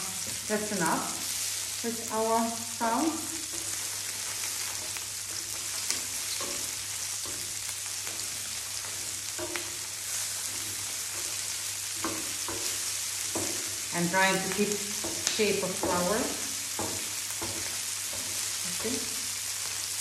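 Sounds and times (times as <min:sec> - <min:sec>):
prawns sizzling in hot oil: 0:00.0 - 0:20.0.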